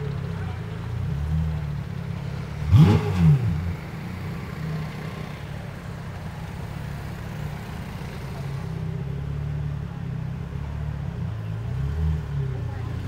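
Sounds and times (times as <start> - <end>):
car engine revving: 0.0 - 5.5
car engine rumbling at low revs: 0.0 - 13.0.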